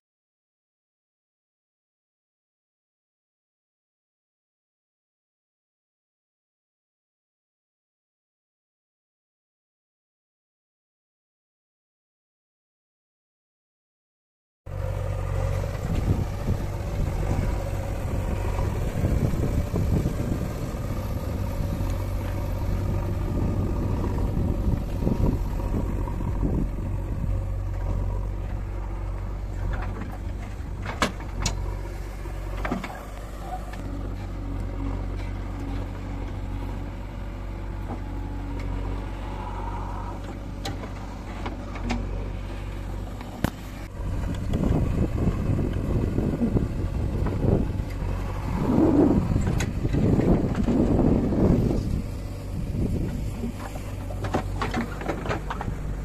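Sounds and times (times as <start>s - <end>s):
diesel engines running: 14.7s - 56.0s.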